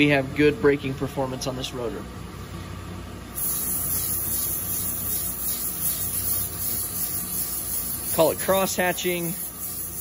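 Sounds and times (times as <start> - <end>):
emery cloth sanding hiss: 3.4 - 10.0.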